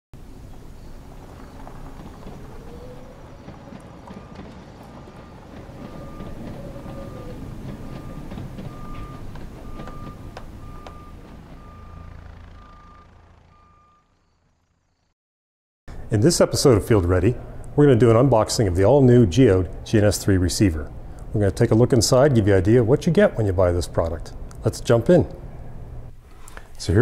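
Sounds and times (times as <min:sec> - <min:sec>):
heavy vehicle engine rumbling: 0:00.2 - 0:14.7, 0:15.9 - 0:26.8
reversing alarm beeping: 0:02.2 - 0:14.5.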